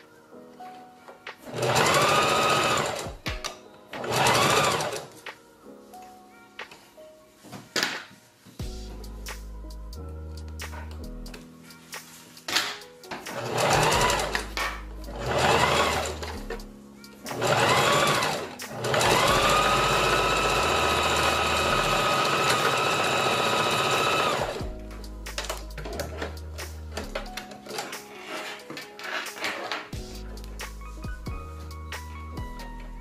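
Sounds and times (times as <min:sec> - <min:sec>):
sewing machine motor whine: 0:01.5 - 0:03.1, 0:04.0 - 0:05.1, 0:13.4 - 0:14.4, 0:15.2 - 0:16.3, 0:17.3 - 0:24.6.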